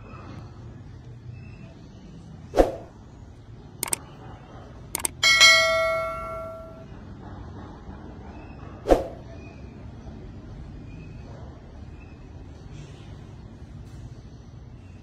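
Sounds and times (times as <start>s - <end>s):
mouse clicks: 5.0s - 5.2s
notification bell ringing: 5.0s - 6.8s.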